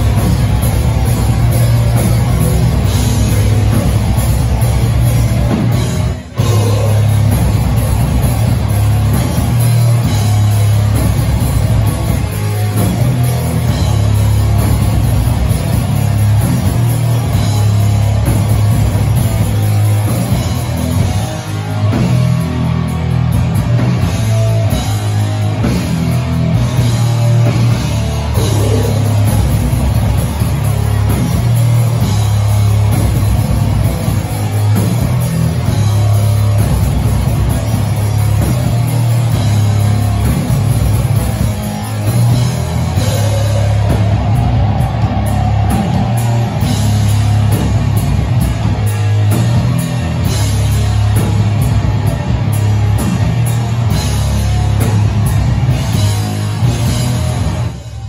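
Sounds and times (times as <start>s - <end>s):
death metal band playing live: 0.0s - 58.0s.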